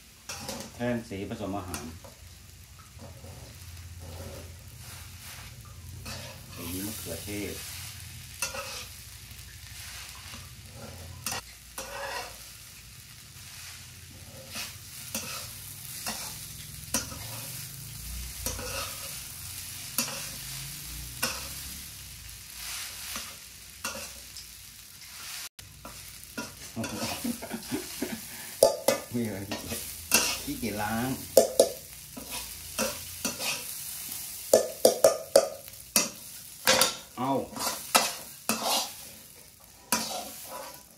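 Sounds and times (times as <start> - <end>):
soft frying sizzle: 0.0 - 40.9
metal spatula scraping pan: 0.3 - 0.8, 3.0 - 12.6, 13.4 - 17.7, 18.3 - 21.9, 22.5 - 24.3, 25.2 - 40.9.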